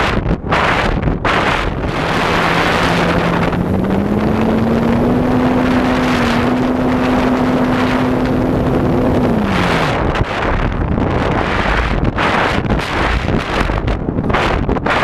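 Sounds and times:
wind rush on microphone: 0.0 - 15.0
model plane motor drone: 1.8 - 10.1.

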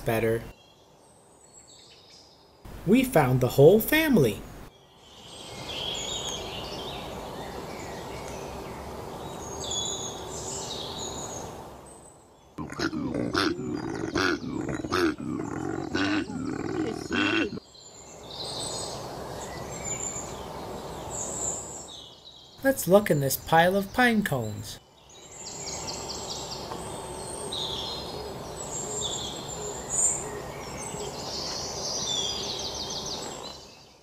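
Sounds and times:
birds chirping: 0.0 - 34.0
soft outdoor ambience: 0.0 - 34.0
koala bellowing: 12.6 - 17.6.

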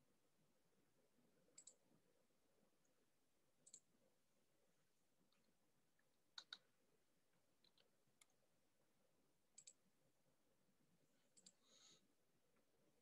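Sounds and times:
faint clicks: 1.5 - 1.8, 3.6 - 3.9, 5.3 - 6.7, 9.6 - 9.8, 11.3 - 11.6.

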